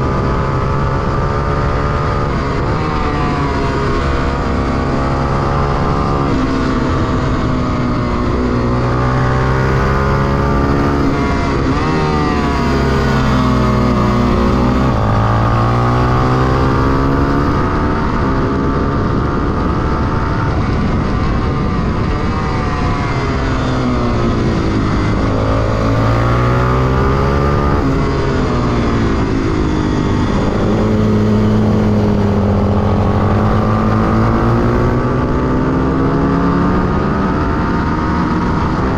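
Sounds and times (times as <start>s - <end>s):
motorcycle engine accelerating: 0.0s - 38.9s
wind rush: 0.0s - 38.9s.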